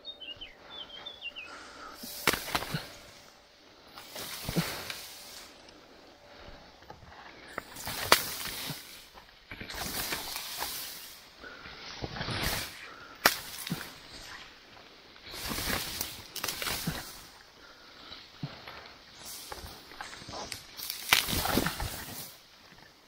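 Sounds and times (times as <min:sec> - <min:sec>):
brush rustling and swishing: 0:01.7 - 0:17.4, 0:19.0 - 0:22.9
sharp twig snaps: 0:13.2 - 0:13.9, 0:20.5 - 0:22.0.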